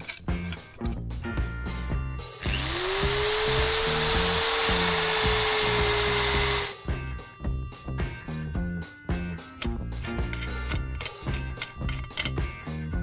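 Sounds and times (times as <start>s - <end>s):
background music with steady beat: 0.0s - 13.0s
electric drill boring: 2.3s - 6.8s.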